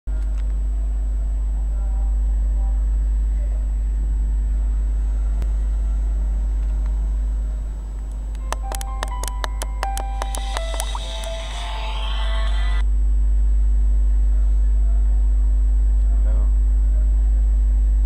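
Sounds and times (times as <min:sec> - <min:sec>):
street traffic rumble: 0:03.7 - 0:10.0.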